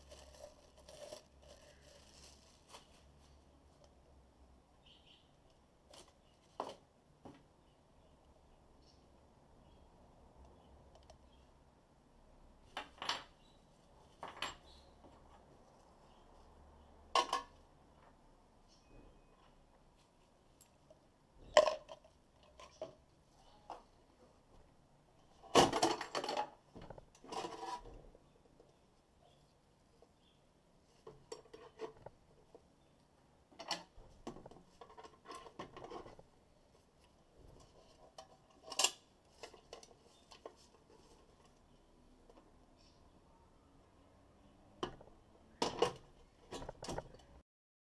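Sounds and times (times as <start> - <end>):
packing material rustling: 0.0 - 3.5.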